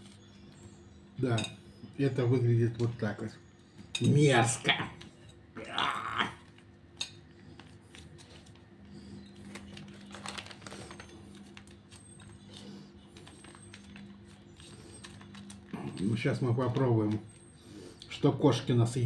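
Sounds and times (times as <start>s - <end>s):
foil pouch crinkling: 7.4s - 17.5s.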